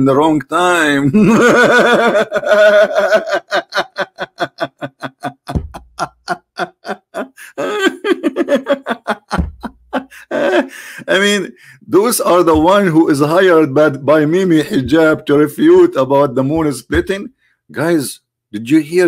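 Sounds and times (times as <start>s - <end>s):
man laughing hard: 1.1s - 11.5s.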